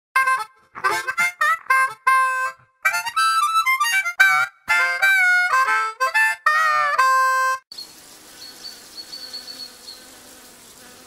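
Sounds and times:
harmonica tune: 0.2s - 7.7s.

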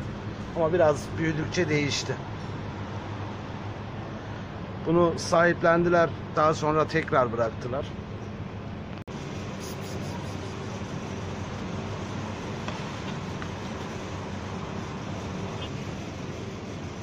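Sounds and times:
low background drone with hiss: 9.1s - 17.0s.

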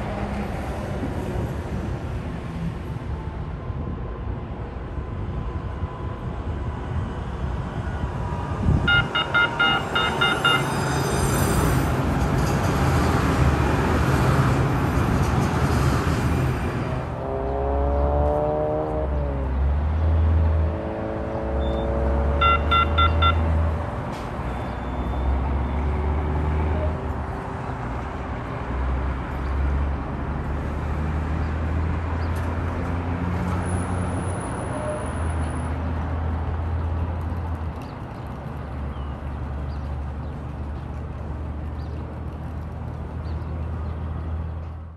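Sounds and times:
road traffic rumble: 0.0s - 44.9s
light rail train electric whine: 5.3s - 13.3s
electronic beeps: 8.9s - 10.8s, 21.6s - 23.5s.

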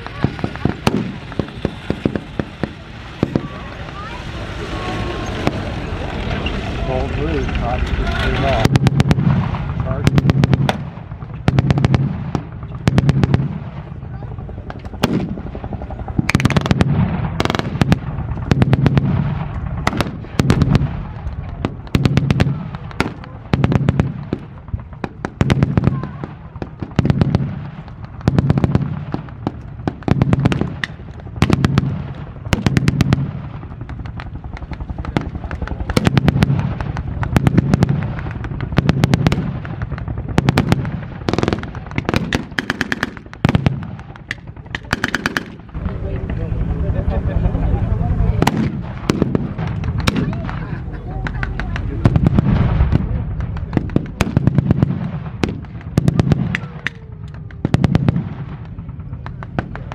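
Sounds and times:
automatic gunfire bursts: 40.4s - 45.6s.

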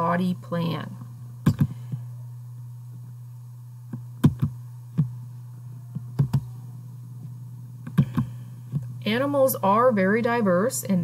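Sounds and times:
steady low hum: 0.0s - 11.0s
computer clicks and taps: 3.9s - 5.1s, 6.2s - 6.5s, 7.9s - 8.9s.

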